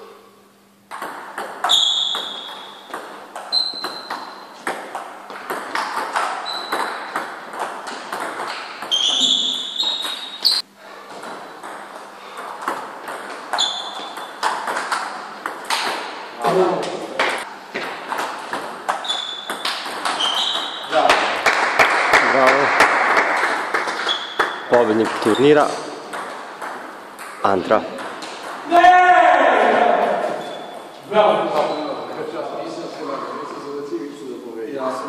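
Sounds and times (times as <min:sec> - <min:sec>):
high-pitched squeaks: 0:08.8 - 0:10.6, 0:13.5 - 0:14.3, 0:19.0 - 0:21.0.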